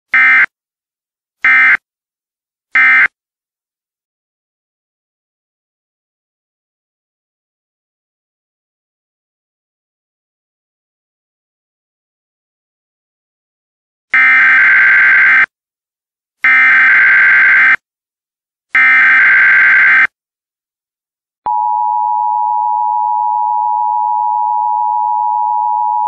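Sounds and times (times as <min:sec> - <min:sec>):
two-tone alert signal: 0:21.5 - 0:26.0.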